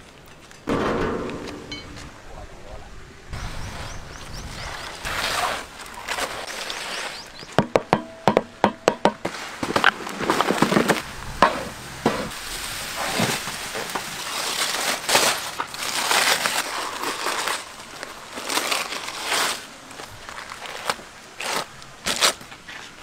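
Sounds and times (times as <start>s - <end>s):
aluminium foil crinkling and tearing: 5.0s - 7.2s, 12.5s - 23.0s
hammer knocking on clay crust: 7.6s - 9.3s
paper wrapping crackling: 12.6s - 23.0s.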